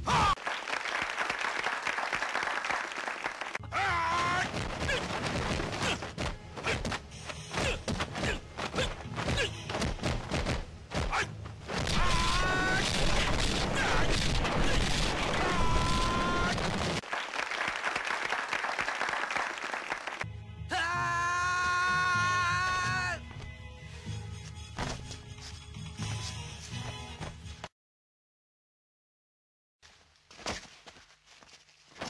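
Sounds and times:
person yelling: 0:00.0 - 0:00.4, 0:03.6 - 0:05.0, 0:11.9 - 0:12.9, 0:14.7 - 0:16.6, 0:20.7 - 0:23.2
punch and kick impacts: 0:04.3 - 0:07.0, 0:07.6 - 0:15.1.

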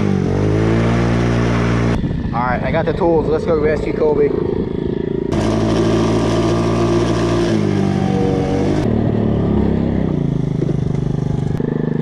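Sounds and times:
small trike engine running: 0:03.5 - 0:12.0.

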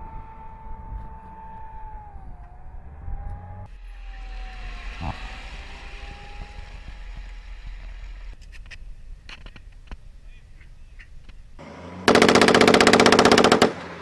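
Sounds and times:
armoured vehicle engine rumble: 0:00.0 - 0:12.3
rapid gunshots: 0:12.1 - 0:13.8.

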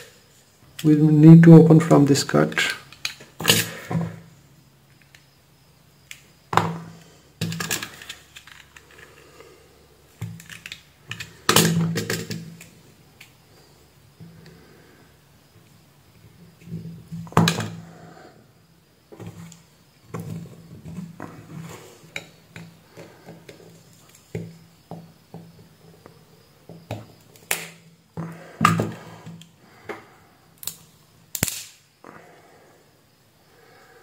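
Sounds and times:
plastic case cracking and snapping: 0:27.3 - 0:27.8, 0:30.6 - 0:31.8.

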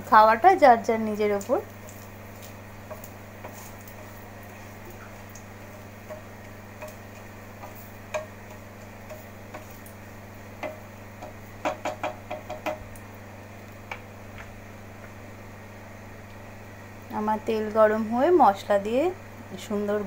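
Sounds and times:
spices crackling in hot oil: 0:00.0 - 0:20.0
steady low hum: 0:00.0 - 0:20.0
wooden spatula knocking pan: 0:06.0 - 0:09.8, 0:10.6 - 0:12.9.

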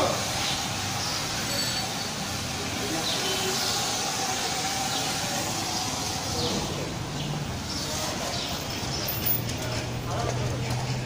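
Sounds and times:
foam cannon spray hissing: 0:00.0 - 0:08.5.

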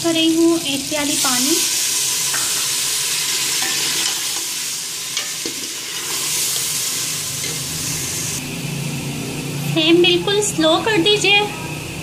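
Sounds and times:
food sizzling in hot oil: 0:00.0 - 0:08.4
steel ladle clinking against pot: 0:05.2 - 0:06.1.

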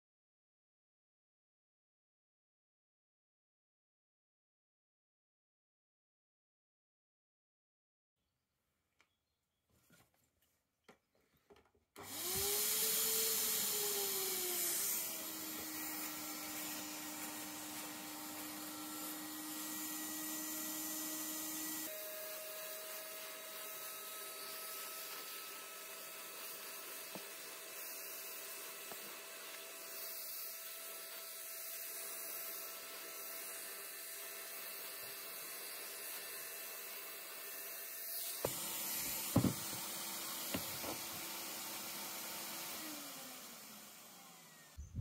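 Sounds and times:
paint spray gun motor whining: 0:12.0 - 0:45.0.

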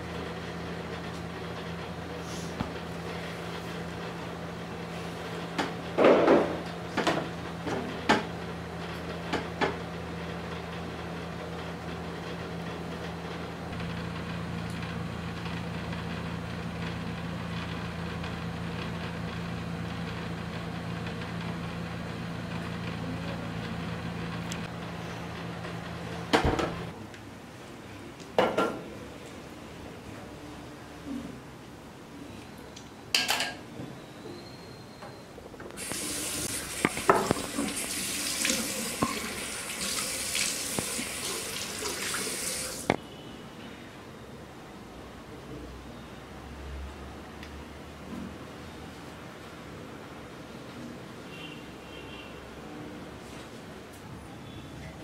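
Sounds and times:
low electrical hum: 0:00.0 - 0:34.2, 0:34.8 - 0:43.2.

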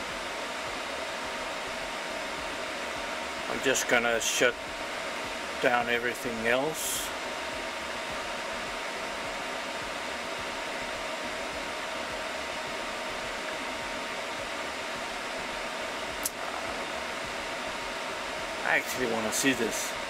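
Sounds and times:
server cooling fans whirring: 0:00.0 - 0:20.0
short click: 0:16.2 - 0:16.4.

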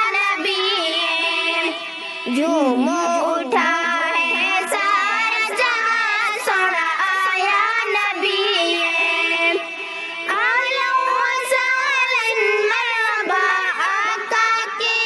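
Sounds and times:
girl singing devotional song: 0:00.0 - 0:15.0.

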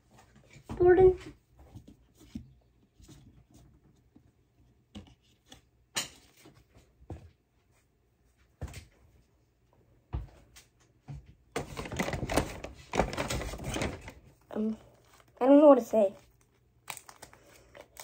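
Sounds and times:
wrapper crinkling: 0:11.6 - 0:18.0.

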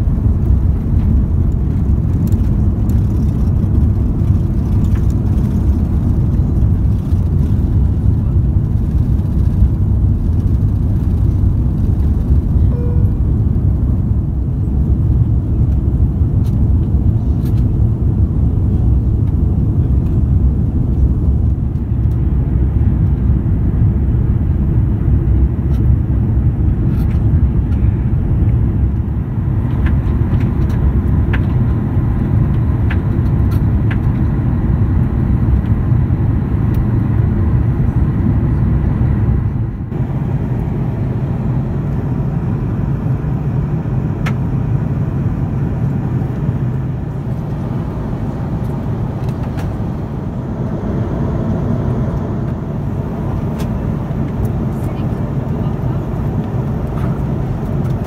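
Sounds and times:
airplane cabin rumble: 0:00.0 - 0:58.0.

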